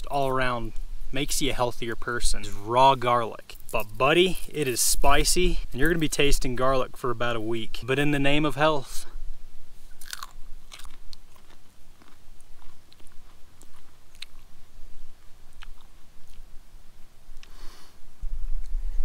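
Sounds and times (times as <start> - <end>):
person chewing crunchily: 10.0 - 16.6.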